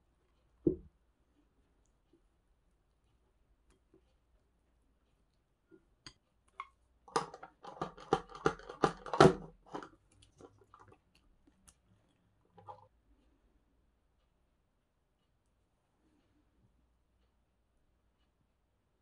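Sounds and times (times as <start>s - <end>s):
utensils clicking and scraping bowl: 6.5s - 11.2s.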